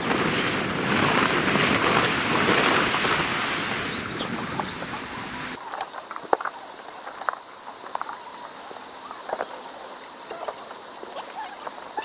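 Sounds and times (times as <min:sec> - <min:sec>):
tent poles clicking: 0:00.0 - 0:08.2
steady high hiss: 0:02.1 - 0:12.0.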